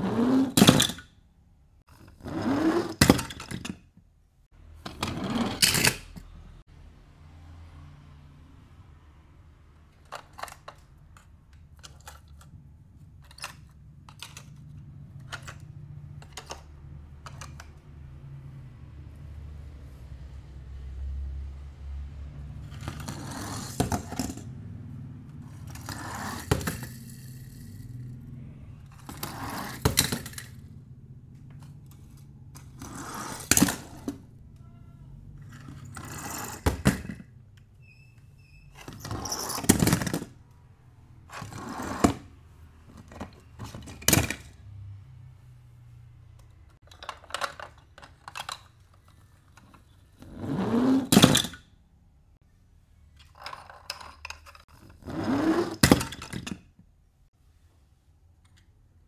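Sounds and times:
toy car packaging scrapes: 22.6s - 24.4s, 25.5s - 27.8s, 28.9s - 30.6s, 32.0s - 34.1s, 35.4s - 36.8s, 41.3s - 42.2s.

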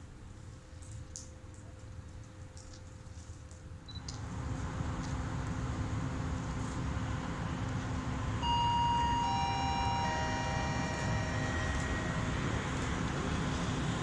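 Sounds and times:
electric locomotive rumbling: 4.7s - 14.0s
public address chime: 8.4s - 12.5s.

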